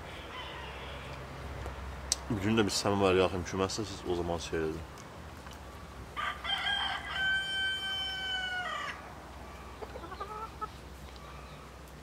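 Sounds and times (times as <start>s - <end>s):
rooster crowing: 0.1s - 1.2s, 6.2s - 9.1s.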